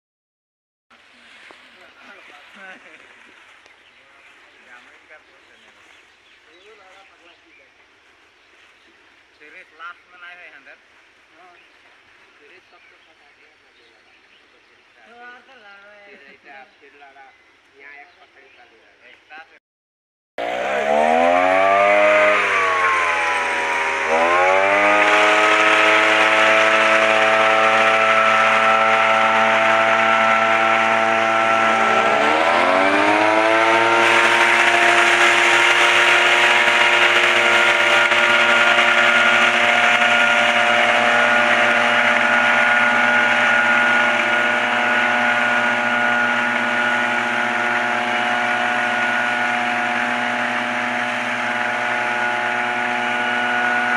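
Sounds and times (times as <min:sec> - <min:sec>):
small petrol engine revving: 0:20.4 - 0:53.9.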